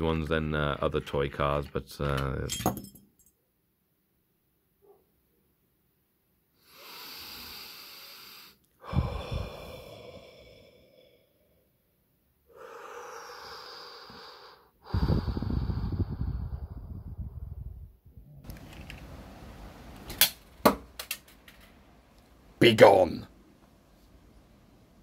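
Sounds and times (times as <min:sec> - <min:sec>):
man breathing heavily: 0:06.6 - 0:11.6, 0:12.5 - 0:17.2
breath blowing on microphone: 0:08.3 - 0:11.2, 0:12.5 - 0:18.5.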